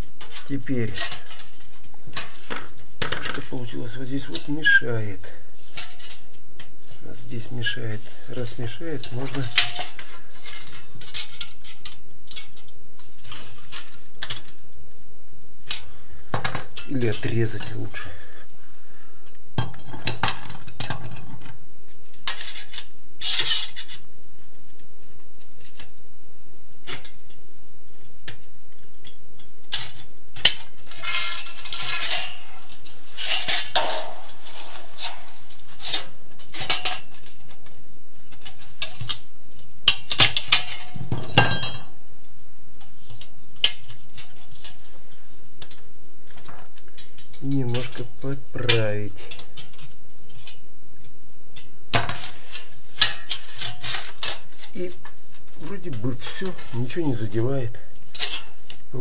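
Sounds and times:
metal scraping: 30.8 - 37.2.

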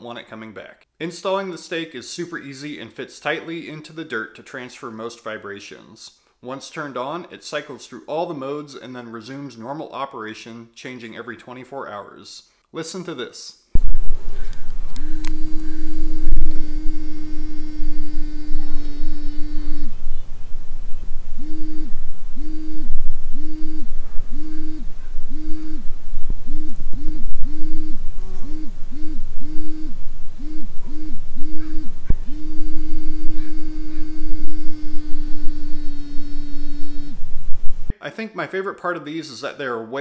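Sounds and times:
low rumble: 13.8 - 37.9
repellent stake humming: 13.8 - 37.9
short pulsed hums: 13.8 - 37.9.

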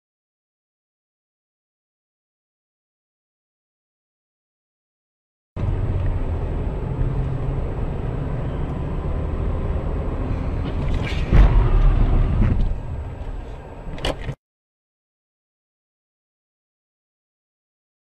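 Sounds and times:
car driving on wet road: 5.6 - 14.3
loud thump: 10.6 - 13.2.

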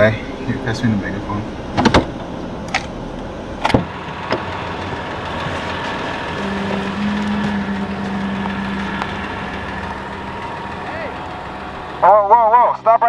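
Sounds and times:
low steady hum: 0.0 - 13.0
truck engine idling: 0.0 - 13.0
truck door clicks and knock: 1.7 - 2.9.

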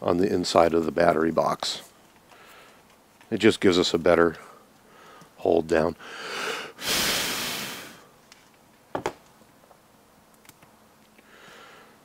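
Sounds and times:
rushing hiss: 6.3 - 8.0.

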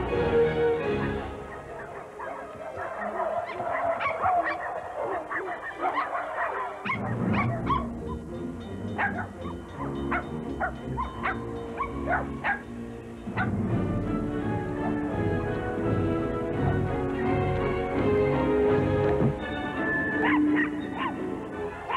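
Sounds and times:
film score music: 0.0 - 21.9
puppies yipping and barking: 1.0 - 13.6, 19.5 - 21.9.

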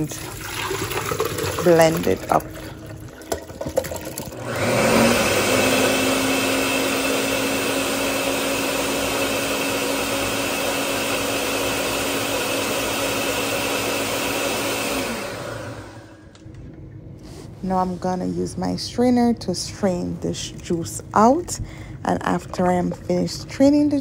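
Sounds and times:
countertop blender running: 0.0 - 16.4.

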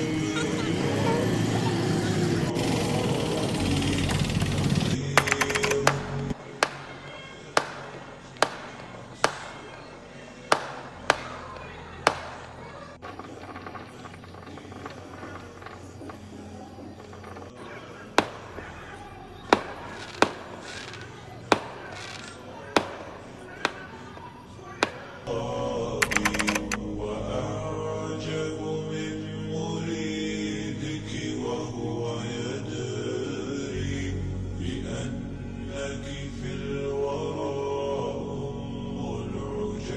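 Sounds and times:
firecrackers banging: 0.0 - 25.4.

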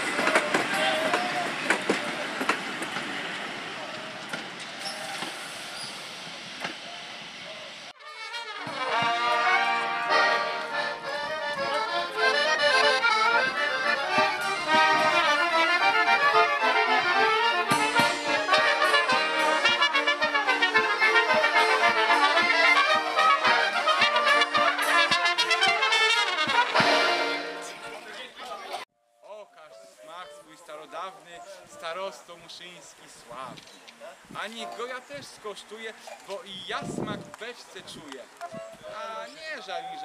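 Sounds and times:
trumpet: 8.0 - 28.1
violins: 8.0 - 28.8
accordion: 8.0 - 32.8, 37.8 - 40.0.

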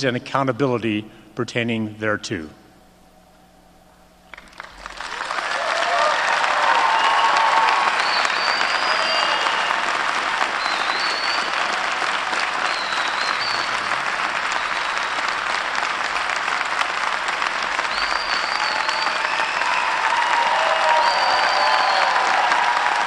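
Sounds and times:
audience applauding: 4.3 - 23.0
shrill calls: 6.8 - 9.9, 10.5 - 15.4, 17.8 - 22.5.

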